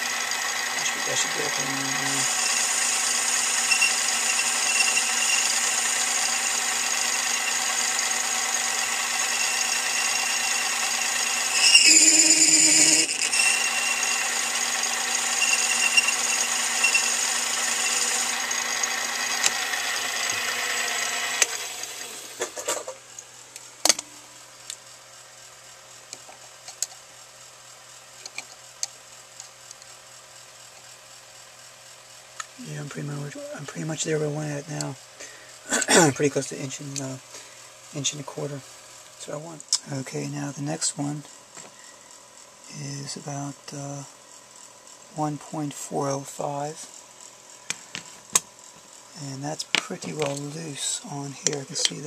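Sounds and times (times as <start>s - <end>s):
metal lathe whining: 0.0s - 22.4s.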